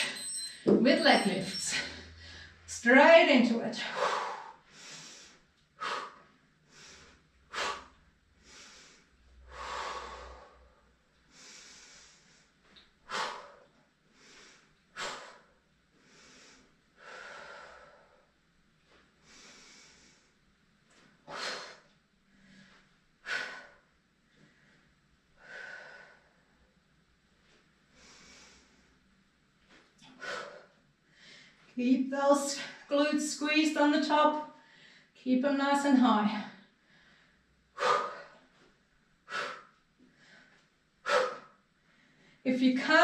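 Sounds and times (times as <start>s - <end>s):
person breathing hard: 3.8s - 18.3s, 30.0s - 31.6s, 36.7s - 42.4s.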